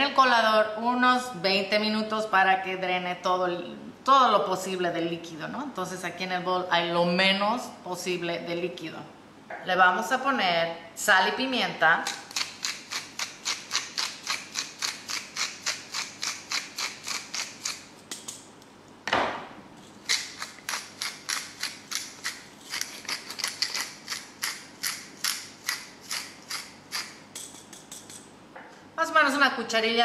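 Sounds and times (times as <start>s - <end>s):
loud knock: 19.1s - 19.6s
pepper mill grinding clicks: 20.0s - 28.2s.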